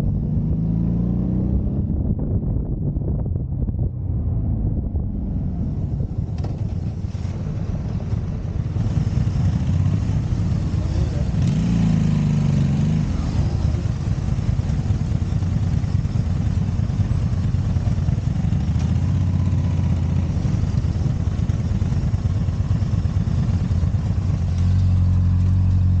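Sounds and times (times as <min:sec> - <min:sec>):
motorcycle engine running: 0:00.0 - 0:26.0.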